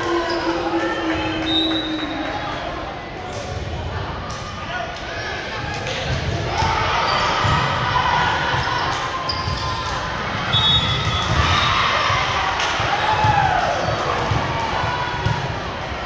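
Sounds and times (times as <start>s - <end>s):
crowd and player voices echoing: 0.0s - 16.0s.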